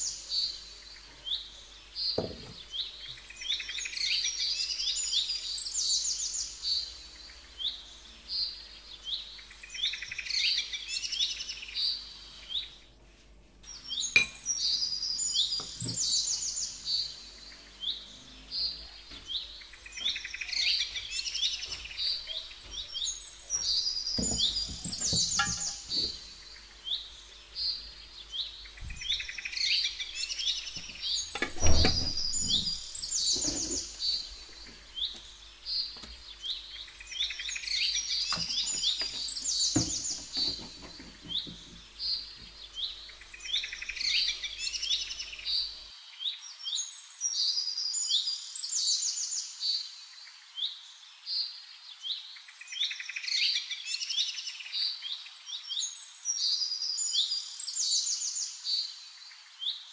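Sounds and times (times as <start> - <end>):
songbird chirps and trills: 0.0 - 59.9
dull knocks: 24.2 - 26.2, 38.3 - 41.8.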